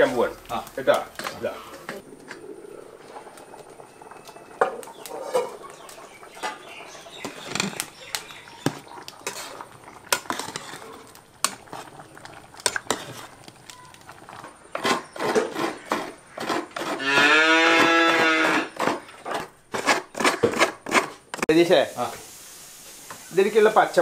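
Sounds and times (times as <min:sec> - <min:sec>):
cow mooing: 0:17.0 - 0:18.7.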